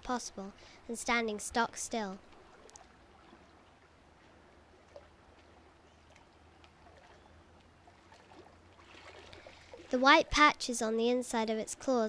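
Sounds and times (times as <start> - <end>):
soft hiss: 0.0 - 7.8.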